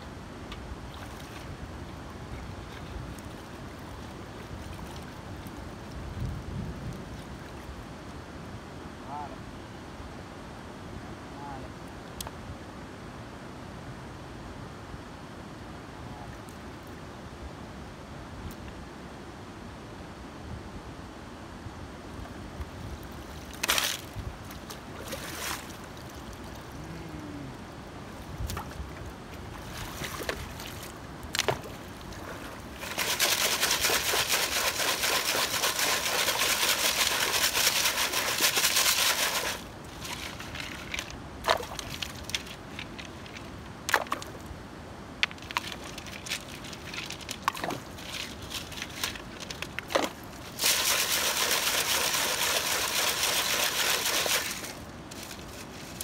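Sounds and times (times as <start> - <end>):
water sloshing: 23.3 - 26.8, 28.4 - 44.4, 45.2 - 55.4
stones rattling in sieve: 32.8 - 43.5, 45.3 - 55.3.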